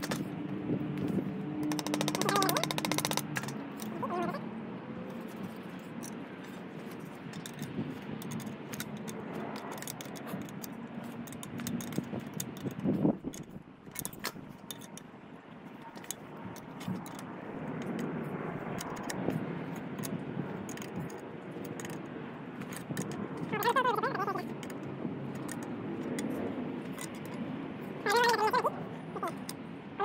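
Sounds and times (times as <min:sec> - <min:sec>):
metallic tool clicks and taps: 0:00.0 - 0:00.3, 0:00.9 - 0:04.0, 0:05.9 - 0:15.1, 0:15.8 - 0:22.0, 0:22.6 - 0:23.6, 0:24.4 - 0:27.4
steady background noise: 0:00.0 - 0:30.0.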